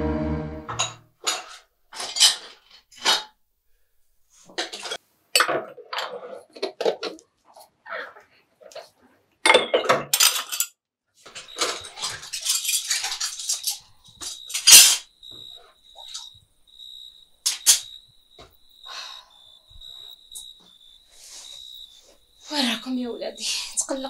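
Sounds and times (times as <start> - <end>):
dishes clattering in a basin: 0.7 - 3.3, 4.5 - 7.2, 9.5 - 15.0.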